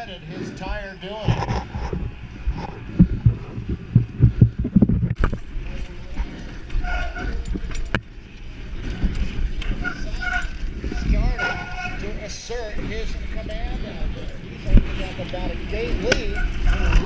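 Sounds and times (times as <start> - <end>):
wind buffeting microphone: 0.0 - 17.0
bike knocks and rattles: 1.3 - 12.1.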